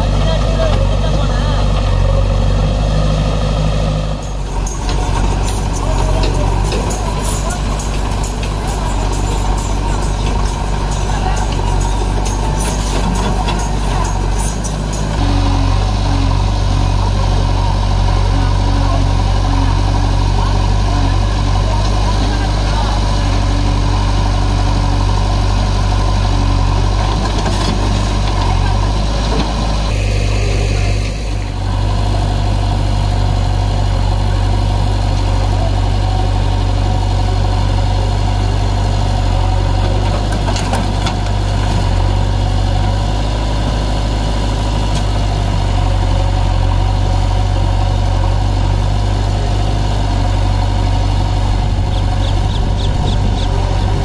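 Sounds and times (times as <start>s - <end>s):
backhoe engine working: 0.0s - 54.0s
tractor engines idling: 0.0s - 54.0s.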